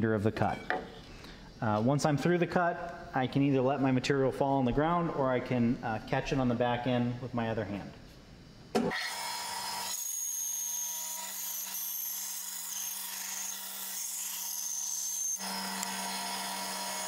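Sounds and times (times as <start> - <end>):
bandsaw motor hum: 8.8 - 17.0.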